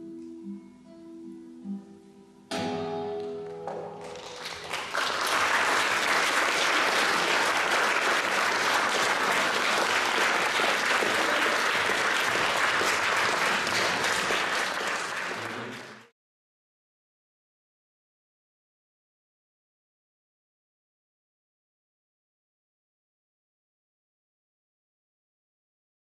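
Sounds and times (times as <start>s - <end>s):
audience applauding: 3.7s - 16.1s.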